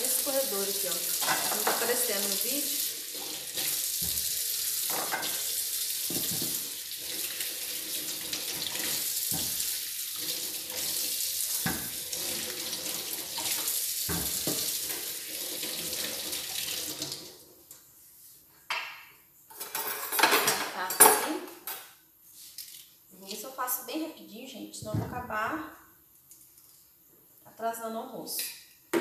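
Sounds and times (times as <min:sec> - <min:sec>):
tap running into steel sink: 0:06.1 - 0:06.6, 0:09.3 - 0:09.6, 0:13.4 - 0:14.7.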